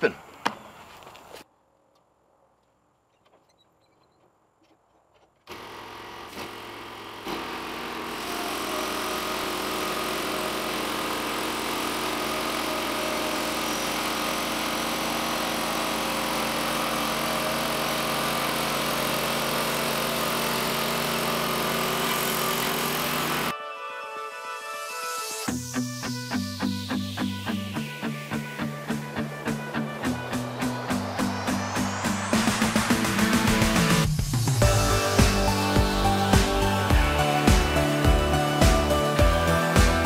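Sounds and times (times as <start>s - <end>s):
band blade cutting wood: 5.4s - 23.5s, 29.1s - 40.0s
sawmill engine running: 5.5s - 23.5s, 25.2s - 40.0s.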